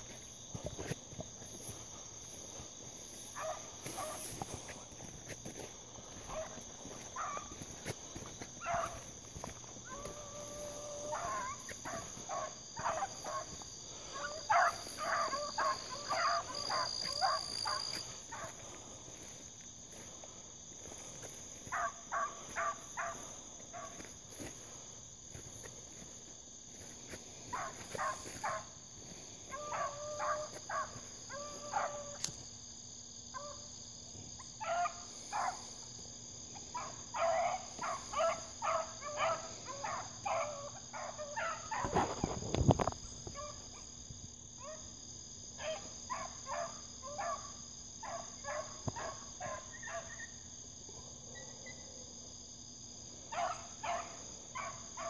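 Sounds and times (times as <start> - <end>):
high insect trill: 0.0 - 55.0
hounds drawn-out bawls: 0.6 - 20.0, 20.8 - 26.2, 26.8 - 32.4, 33.3 - 33.7, 34.4 - 35.9, 36.5 - 43.9, 45.6 - 50.4, 51.0 - 52.2, 53.1 - 55.0
hounds yelping barks: 1.6 - 20.0, 20.8 - 26.2, 26.8 - 32.4, 33.3 - 33.8, 34.4 - 35.9, 36.5 - 42.4, 43.2 - 44.0, 44.6 - 45.0, 45.6 - 52.1, 53.1 - 55.0.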